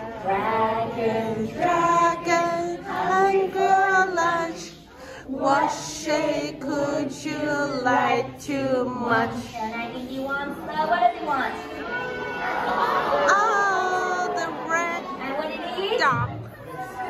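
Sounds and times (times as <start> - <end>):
group singing along: 0.0 - 15.1
woman singing a children's song: 5.9 - 10.7.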